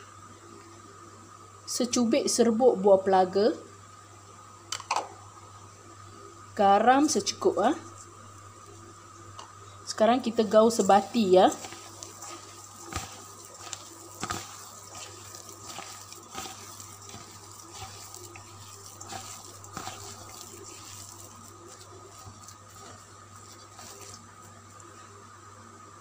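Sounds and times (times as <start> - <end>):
wet squishing and scraping: 10.5 - 25.0.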